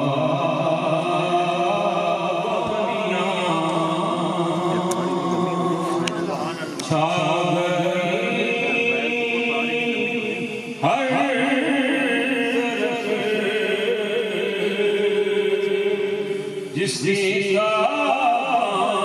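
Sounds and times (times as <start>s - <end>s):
men chanting: 0.0s - 19.0s
voice over microphone: 0.0s - 19.0s.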